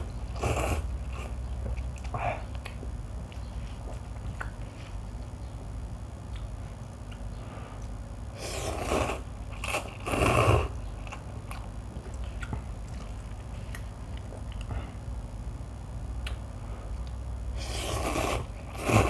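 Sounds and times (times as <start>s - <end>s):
noodles being slurped: 17.6s - 19.0s.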